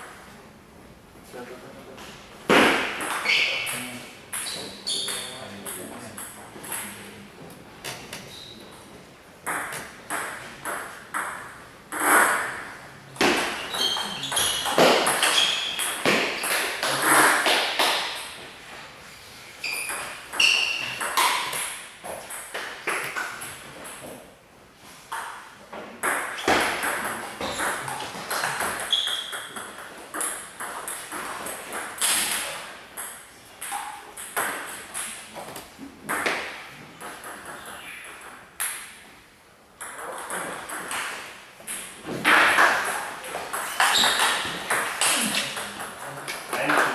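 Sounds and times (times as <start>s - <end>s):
table tennis balls clicking: 9.4s - 18.5s, 19.7s - 24.2s, 25.1s - 39.2s, 39.8s - 46.9s.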